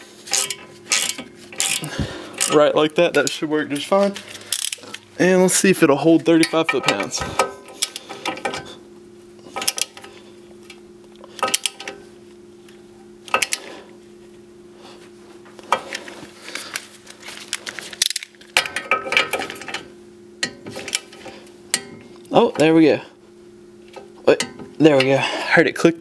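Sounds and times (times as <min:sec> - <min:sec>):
steady low hum: 0:00.0 - 0:26.0
torque wrench clicking: 0:00.3 - 0:02.6.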